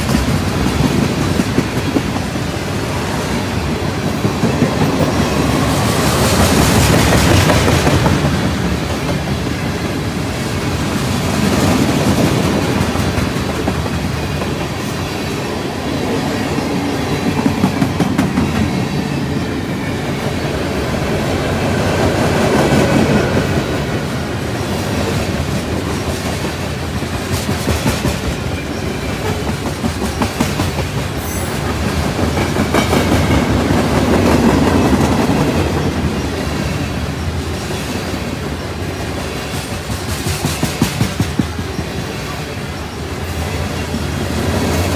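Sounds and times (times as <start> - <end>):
freight train wheels rumbling: 0.0 - 44.9.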